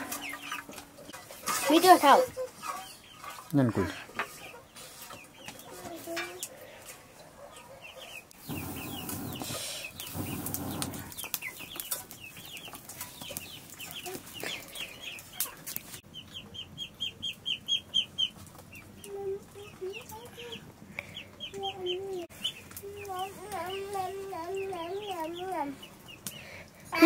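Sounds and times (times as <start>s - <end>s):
chicks peeping: 0.0s - 0.8s, 7.4s - 26.5s.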